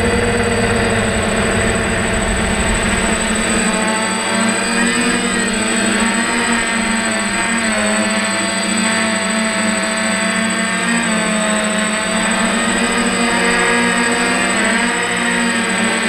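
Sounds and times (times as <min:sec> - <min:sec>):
thin high whine: 0:00.0 - 0:10.3
drone propellers buzzing: 0:00.0 - 0:16.0.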